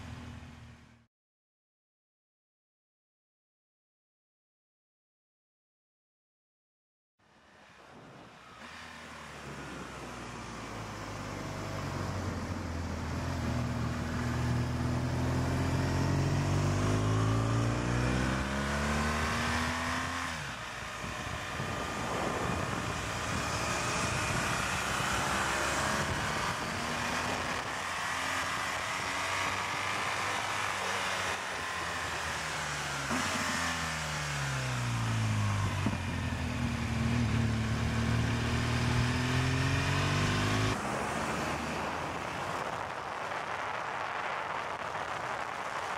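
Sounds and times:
motorcycle engine revving: 8.6s - 44.1s
wind rushing: 21.0s - 27.7s.

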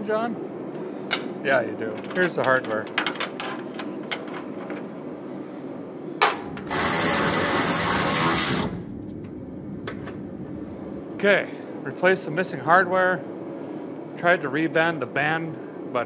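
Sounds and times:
hardware clinking: 1.9s - 4.9s
electric ratchet spinning bolt: 6.7s - 8.8s.

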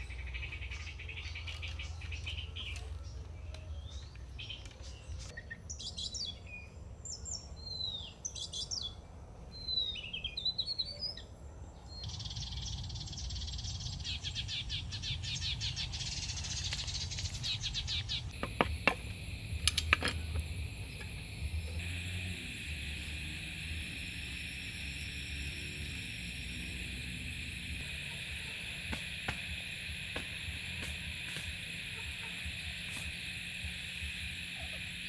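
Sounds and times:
birds chirping: 0.0s - 9.0s, 9.6s - 35.0s
high insect trills: 12.0s - 35.0s
pulsing insect chorus: 12.0s - 35.0s.

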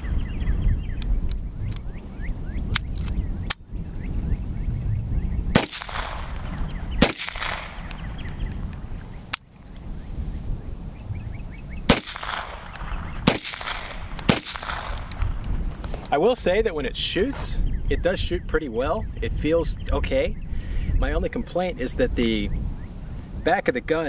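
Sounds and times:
low wind rumble on microphone: 0.0s - 24.0s
pistol shots with echo: 5.6s - 8.3s, 11.9s - 15.4s.

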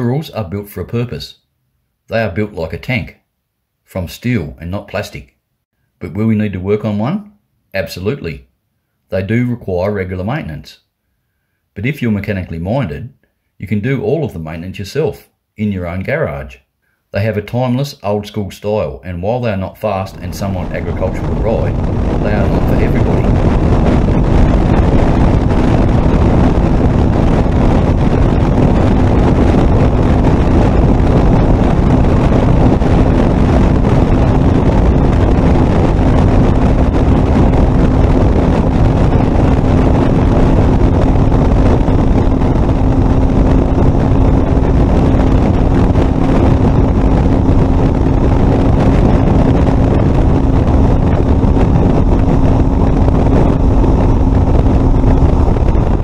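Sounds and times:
wind noise on microphone: 19.6s - 56.0s
motorcycle engine running: 20.2s - 56.0s.

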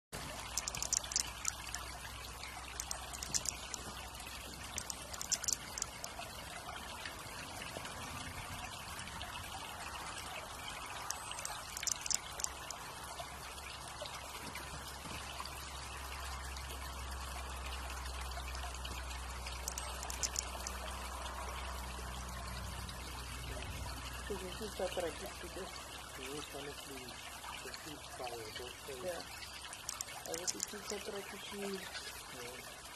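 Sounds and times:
high thin ticks: 0.2s - 6.6s, 10.8s - 12.8s, 19.4s - 20.9s, 29.4s - 31.2s
flowing water trickle: 0.2s - 32.9s.

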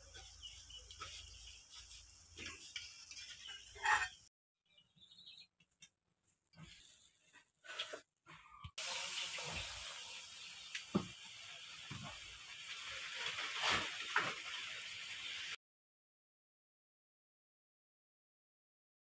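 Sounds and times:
hot oil sizzling: 0.0s - 4.3s, 8.8s - 15.6s.

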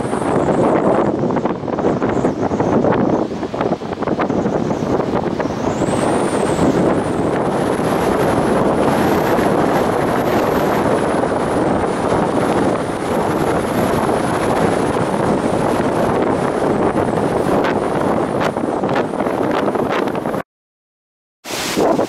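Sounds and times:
wind buffeting microphone: 0.0s - 20.4s, 21.5s - 22.0s.

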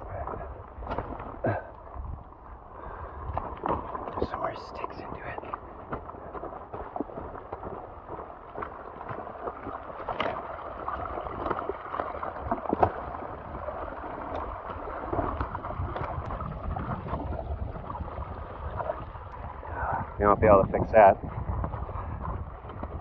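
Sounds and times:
rainwater flowing and gurgling: 0.0s - 23.0s
wind rumbling on microphone: 0.0s - 23.0s
sharp clicks or splashes: 0.8s - 2.0s, 3.2s - 17.3s.

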